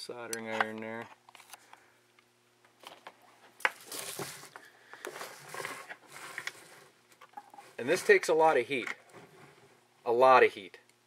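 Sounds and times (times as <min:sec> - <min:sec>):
tools rustling and clattering: 0:02.7 - 0:09.7.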